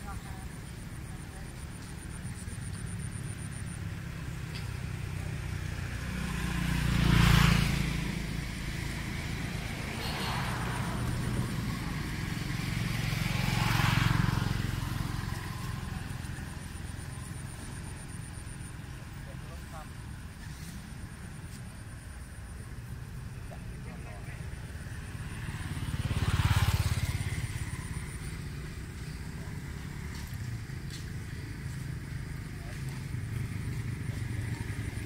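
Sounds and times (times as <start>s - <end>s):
low traffic hum: 0.0s - 35.0s
vehicles passing by: 0.0s - 35.0s.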